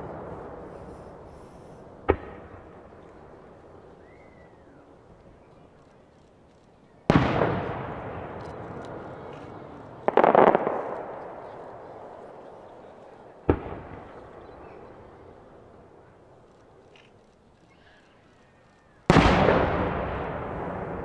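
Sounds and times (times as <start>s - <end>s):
crackling firework pops: 0.0s - 4.5s, 6.6s - 15.0s, 19.0s - 21.0s
firework shells bursting: 6.6s - 14.9s.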